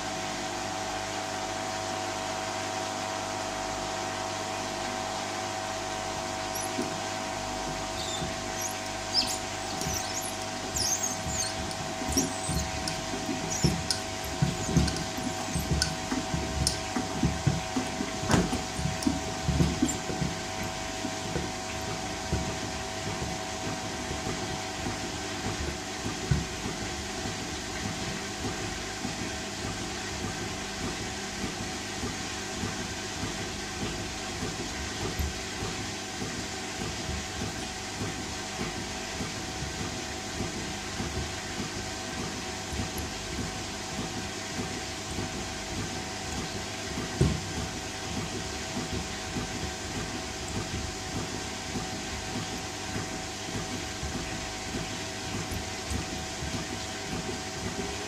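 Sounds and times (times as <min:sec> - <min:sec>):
washing machine drum turning: 0:05.9 - 0:58.0
water sloshing: 0:06.1 - 0:23.3
sandals knocking against drum: 0:06.5 - 0:22.6.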